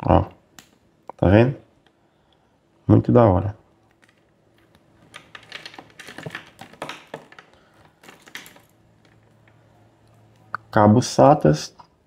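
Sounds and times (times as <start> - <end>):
plastic connectors clicking: 3.8 - 9.6.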